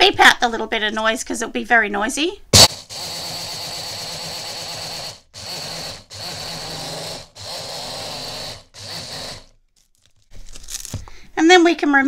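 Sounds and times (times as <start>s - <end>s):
blender motor grinding crystals: 2.6s - 9.6s.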